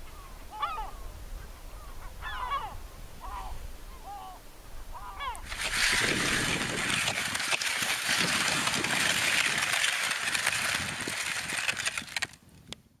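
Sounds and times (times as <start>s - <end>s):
skis scraping over icy snow: 5.4s - 12.4s.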